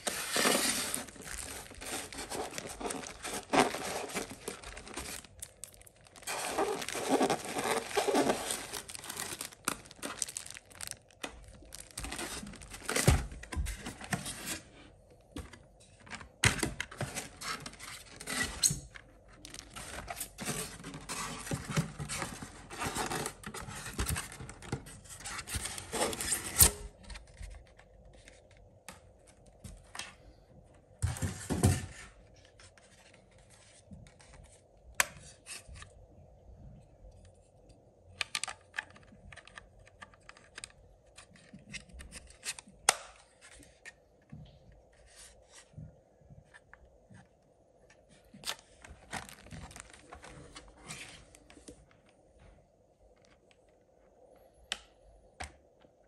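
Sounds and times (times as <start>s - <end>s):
packaging scratching and rubbing: 0.0s - 14.7s
small clicks and knocks of handling: 37.1s - 44.7s.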